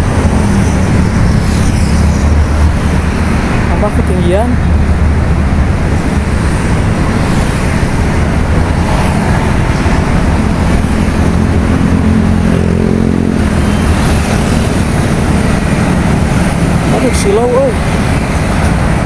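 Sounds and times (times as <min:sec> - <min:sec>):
rumble of passing traffic: 0:00.0 - 0:19.0
vehicle engine hum: 0:00.0 - 0:19.0.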